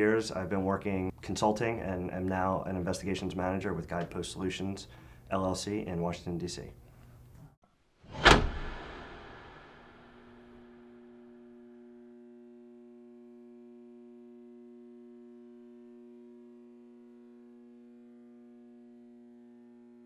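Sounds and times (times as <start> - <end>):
faint steady drone of held tones: 10.3 - 20.0.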